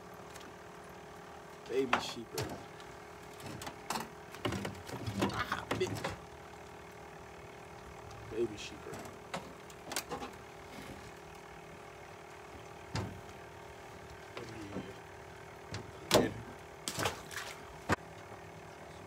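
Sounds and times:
faint steady hum: 0.0 - 19.0
fish handled in boat clicks: 8.9 - 10.5.

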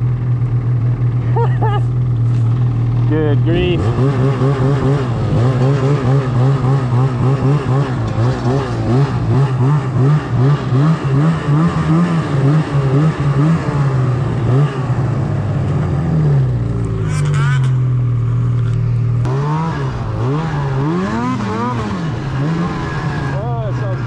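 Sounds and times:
snowmobile engine revving: 0.0 - 24.0.

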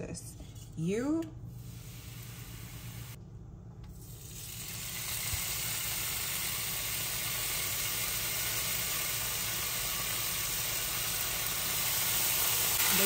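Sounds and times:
bacon sizzling in a pan: 4.0 - 13.0.

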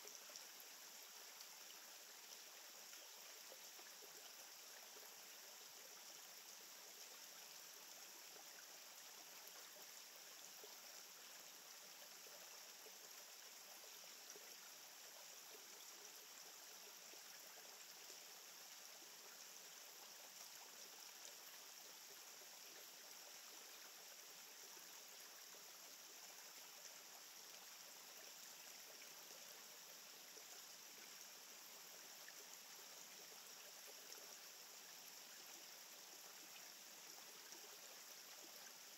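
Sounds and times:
faint outdoor hiss: 0.0 - 38.9.

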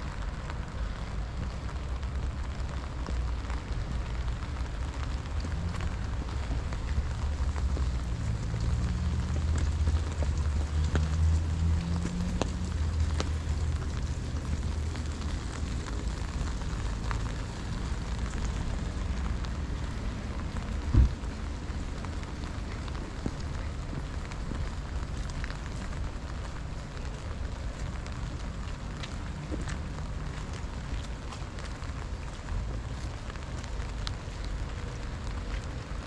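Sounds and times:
rain hiss: 0.0 - 36.0
raindrops ticking: 0.0 - 36.0
loud low thump: 20.9 - 21.2.

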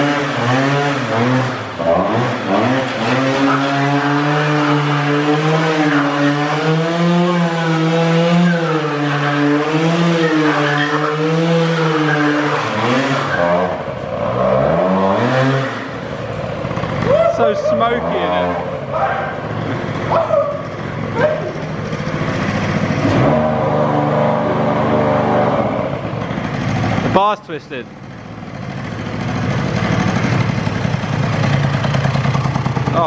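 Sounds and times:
moped engine revving: 0.0 - 33.0.

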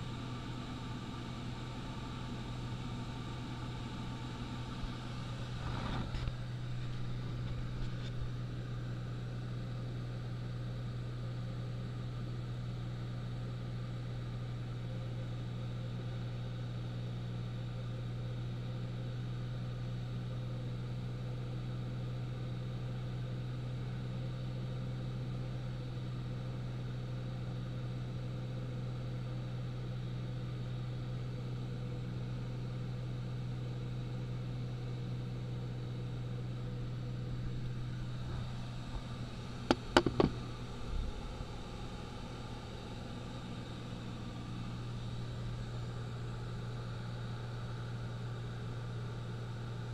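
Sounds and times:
light aircraft engine droning: 0.0 - 49.9
brief knocks: 39.7 - 40.4.

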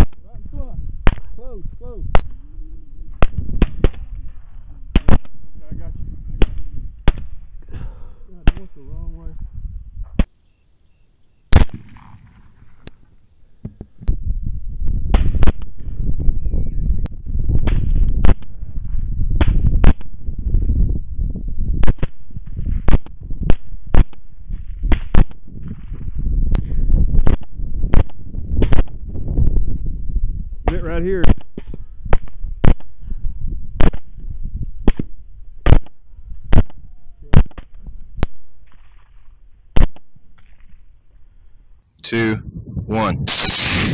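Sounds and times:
bullet impact report: 0.0 - 0.3, 1.0 - 2.4, 4.9 - 5.7, 8.4 - 8.9, 43.2 - 43.9
low rumble: 0.1 - 7.7, 14.0 - 30.7
suppressed rifle shots: 3.2 - 4.2, 4.9 - 5.5, 6.4 - 7.4, 11.5 - 12.5, 43.3 - 43.9.

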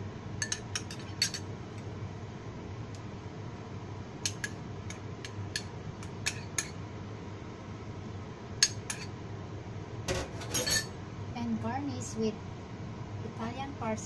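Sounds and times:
metal spoon clinking ceramic bowl: 0.4 - 1.4, 5.3 - 6.8, 8.6 - 9.1, 10.4 - 10.9.

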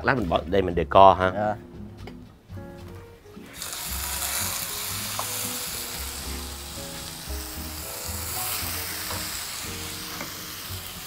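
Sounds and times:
steak sizzling in a frying pan: 3.5 - 11.0.

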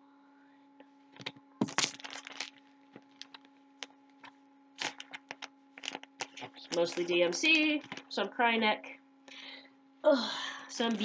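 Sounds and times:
paper booklet rustling: 1.6 - 3.5, 4.2 - 8.2.

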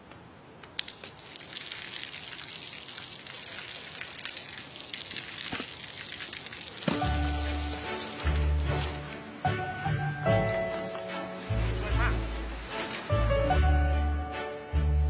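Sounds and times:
water dripping on pavement: 0.6 - 8.5.

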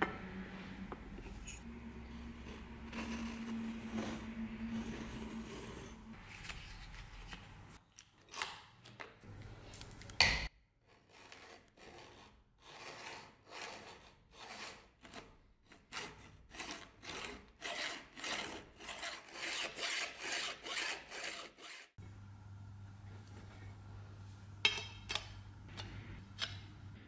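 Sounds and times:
file rasping on steel: 11.1 - 22.0.

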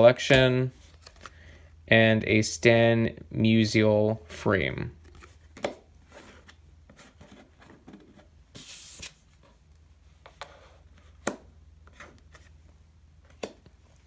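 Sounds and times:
card sliding on wooden table: 8.5 - 9.2.

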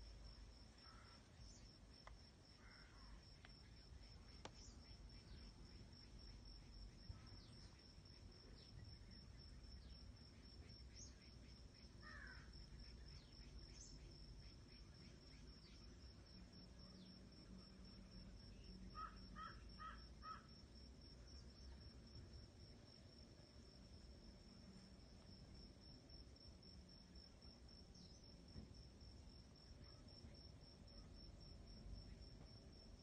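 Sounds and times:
faint bird chirps: 0.0 - 1.8, 2.5 - 20.5.

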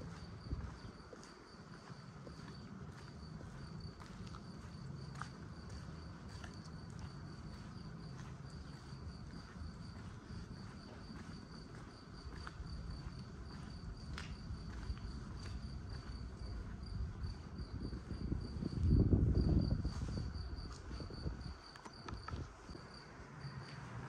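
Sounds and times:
cricket chirping: 0.0 - 24.0.

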